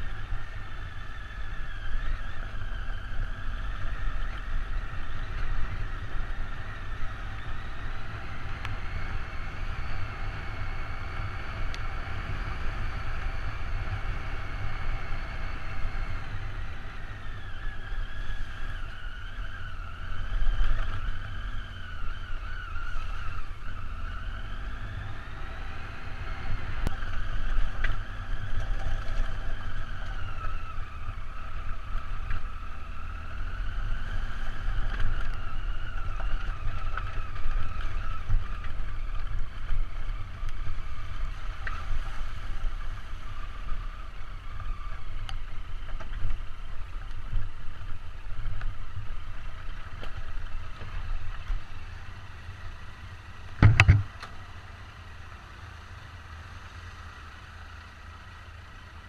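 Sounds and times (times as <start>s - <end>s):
motorcycle engine revving: 0.0s - 55.4s
sharp knocks: 53.6s - 54.1s.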